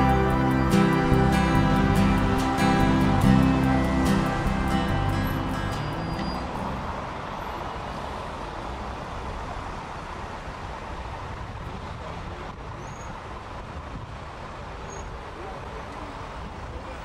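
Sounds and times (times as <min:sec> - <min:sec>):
dense road traffic passing: 0:00.0 - 0:17.0.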